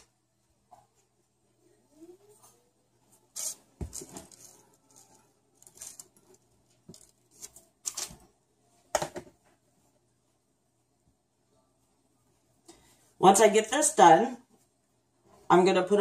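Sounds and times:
dough rustling and scraping: 0:03.0 - 0:08.3.

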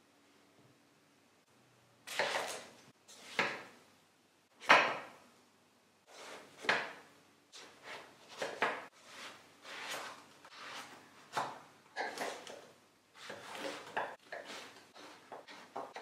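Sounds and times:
knife cutting eggplant: 0:02.1 - 0:03.7, 0:06.1 - 0:07.0, 0:07.6 - 0:16.0.

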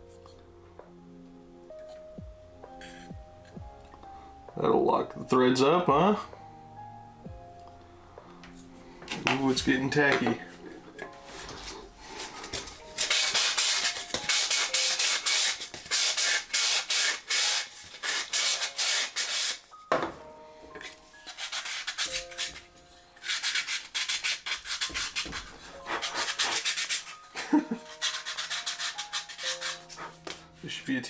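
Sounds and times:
sandpaper rubbing on cardboard: 0:13.0 - 0:19.6, 0:21.2 - 0:22.6, 0:23.2 - 0:27.2, 0:27.8 - 0:30.3.

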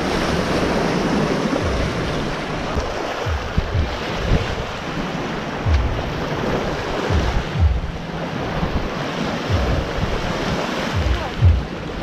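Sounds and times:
small waves washing on beach: 0:00.0 - 0:12.0
wind buffeting microphone: 0:00.0 - 0:12.0.

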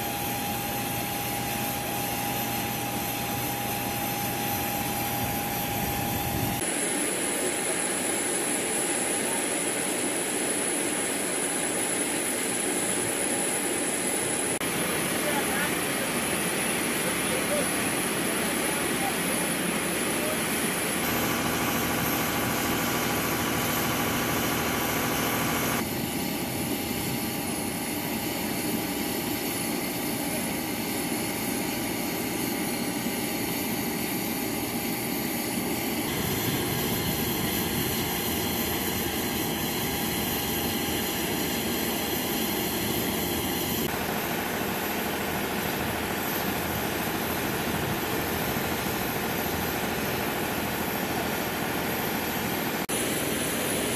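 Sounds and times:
machinery drone: 0:00.0 - 0:06.6, 0:14.7 - 0:26.0, 0:35.3 - 0:53.9.

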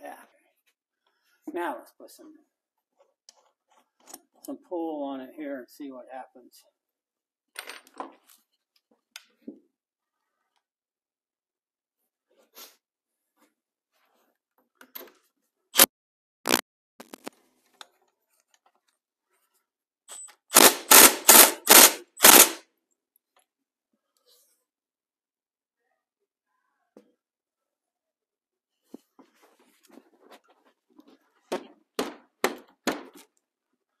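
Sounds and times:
impact wrench hammering: 0:20.1 - 0:22.6, 0:32.0 - 0:33.2.

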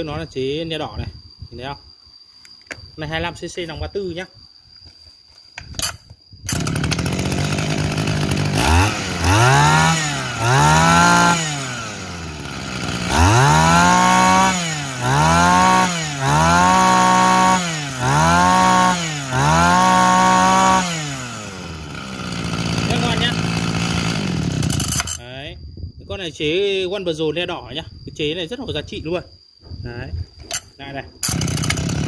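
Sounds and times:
two-stroke engine revving: 0:06.5 - 0:25.2, 0:31.2 - 0:32.0.

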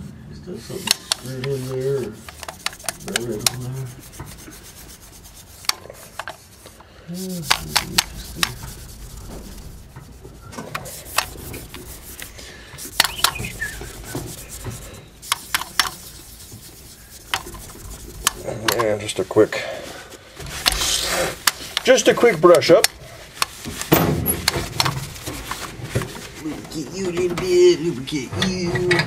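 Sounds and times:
hand rubbing on metal: 0:00.6 - 0:28.6
fingers clicking against chrome: 0:12.9 - 0:14.2.

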